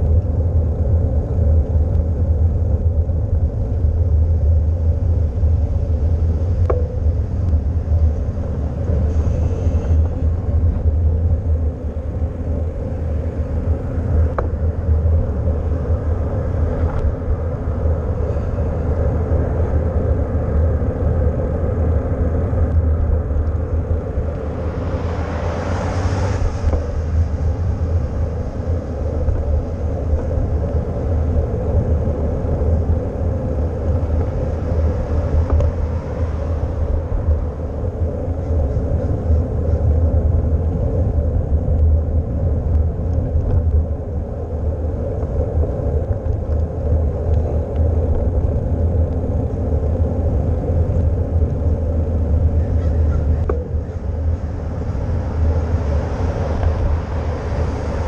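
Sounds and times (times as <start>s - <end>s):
tyre noise on road: 0.0s - 58.0s
wind noise on microphone: 0.0s - 58.0s
vehicle passing: 22.0s - 31.8s.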